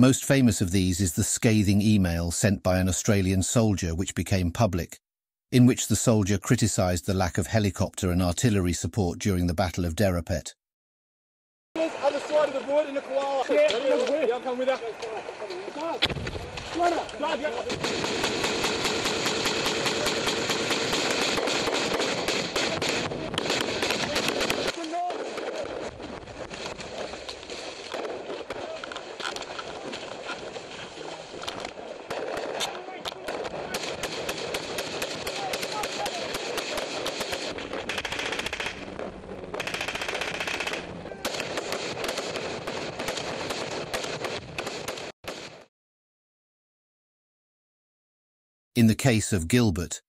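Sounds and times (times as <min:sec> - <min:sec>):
automatic gunfire: 0:17.6 - 0:27.1, 0:32.1 - 0:45.6.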